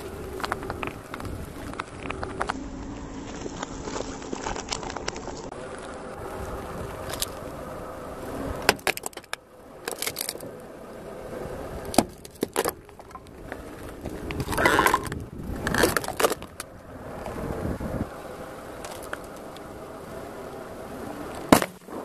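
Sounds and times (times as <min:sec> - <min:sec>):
car low rumble: 0:00.0 - 0:22.0
light bulbs cracking under tyre: 0:08.6 - 0:10.5, 0:11.9 - 0:16.7.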